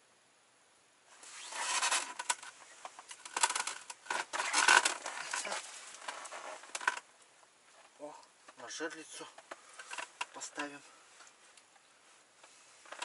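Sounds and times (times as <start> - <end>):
clothing and gear rustling: 1.1 - 7.0.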